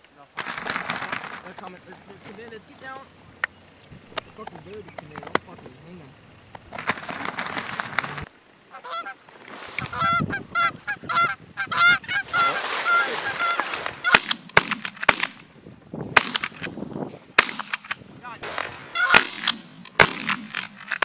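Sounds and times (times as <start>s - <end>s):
geese honking: 0.7s - 14.3s, 18.4s - 19.4s
shotgun shots: 13.0s - 15.5s, 16.2s - 16.7s, 17.4s - 21.0s.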